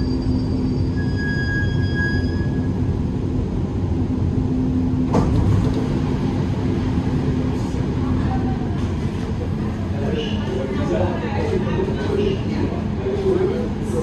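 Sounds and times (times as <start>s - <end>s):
high squeal: 0.0s - 2.9s
train rumble and hum: 0.0s - 14.0s.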